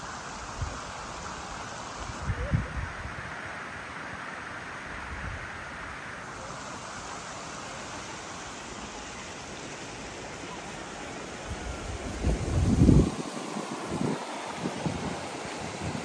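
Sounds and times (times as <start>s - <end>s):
river flowing over rocks: 3.2s - 16.0s
wind buffeting microphone: 11.4s - 16.0s.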